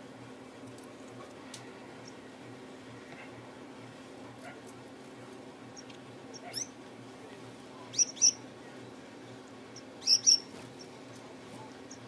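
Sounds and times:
steady low hum: 0:00.0 - 0:12.0
finch chirping: 0:05.8 - 0:06.7, 0:07.9 - 0:08.4, 0:09.7 - 0:10.9.

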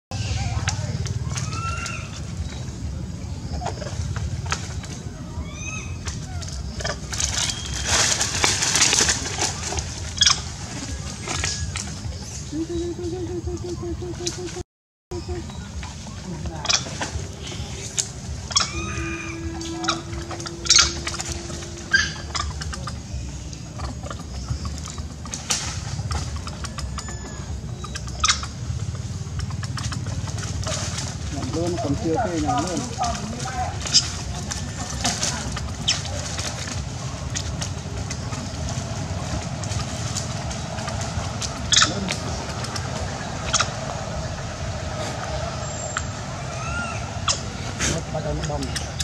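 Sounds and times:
dry leaves rustling and crackling: 0:00.1 - 0:14.6, 0:15.2 - 0:49.0
constant low rumble: 0:00.1 - 0:49.0
steady low hum: 0:00.1 - 0:49.0
pitched animal call: 0:18.4 - 0:25.0.

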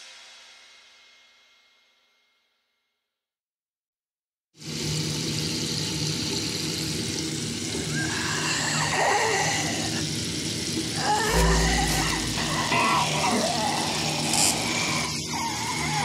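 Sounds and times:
faint wavering tones: 0:11.0 - 0:13.7
low hum: 0:11.0 - 0:13.7.

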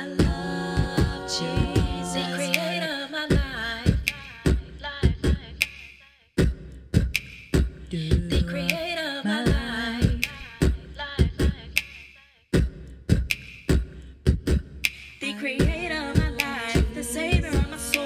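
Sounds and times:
wordless vocal harmonies: 0:00.0 - 0:05.8, 0:07.9 - 0:12.0, 0:14.9 - 0:18.0
beatboxed drum pattern: 0:00.0 - 0:18.0.

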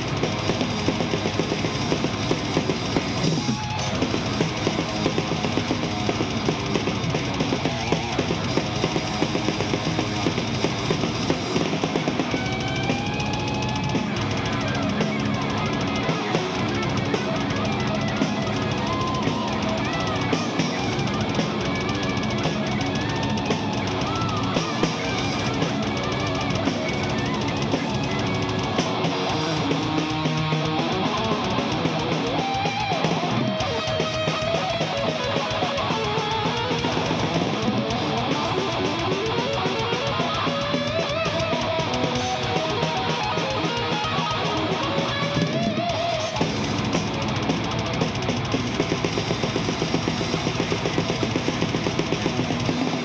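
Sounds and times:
distorted electric guitars: 0:00.0 - 0:53.0
fast drums: 0:00.0 - 0:53.0
lead guitar bending notes: 0:00.0 - 0:53.0.

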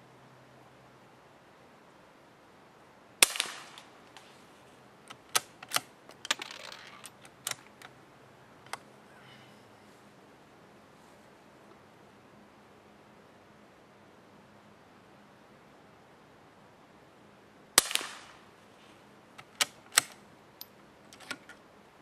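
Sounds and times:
rifle shot with echo: 0:03.2 - 0:03.9, 0:17.8 - 0:18.4
rifle bolt metallic clicks: 0:05.1 - 0:07.9, 0:19.4 - 0:21.6.

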